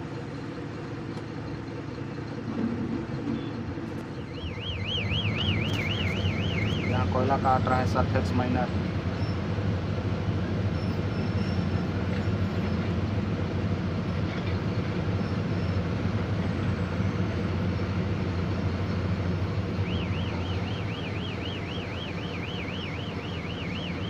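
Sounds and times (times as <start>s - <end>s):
heavy diesel machinery drone: 0.0s - 24.0s
warbling electronic alarm: 4.2s - 7.4s, 19.8s - 24.0s.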